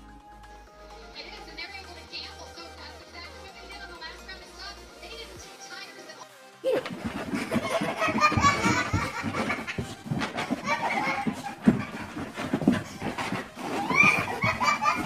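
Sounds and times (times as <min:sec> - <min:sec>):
people laughing and talking: 0:06.6 - 0:15.0.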